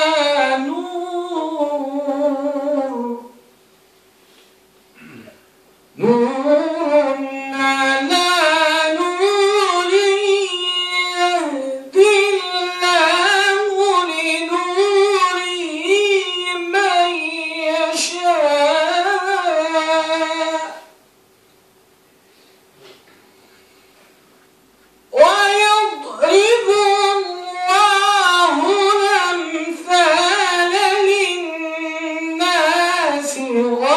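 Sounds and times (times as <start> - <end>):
man chanting recitation: 6.0 - 20.9, 25.1 - 33.9.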